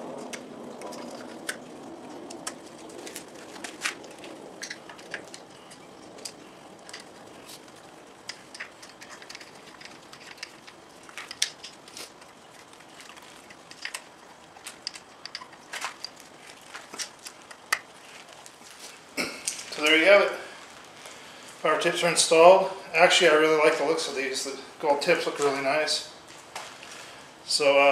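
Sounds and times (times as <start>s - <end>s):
metal clicks and scrapes: 0.3s - 1.6s, 2.3s - 18.5s.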